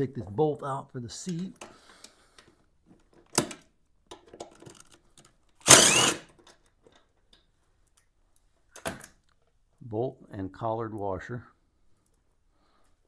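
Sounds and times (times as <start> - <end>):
cordless drill whining: 5.6 - 6.3.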